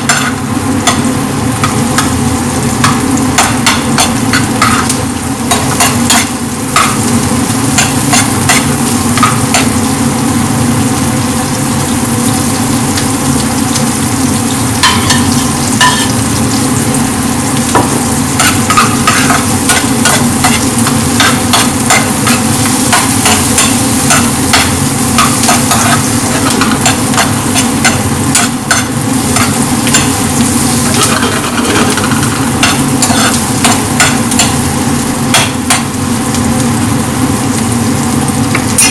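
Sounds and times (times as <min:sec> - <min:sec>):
onion and garlic sizzling in pan: 0:00.0 - 0:38.9
metal ladle scraping pan: 0:30.9 - 0:34.5.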